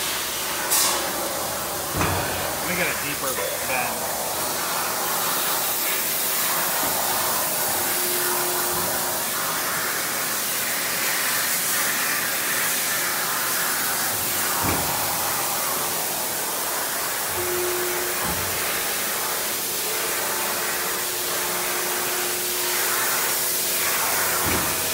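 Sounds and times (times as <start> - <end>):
hydraulic press rushing hum: 0.0 - 24.9.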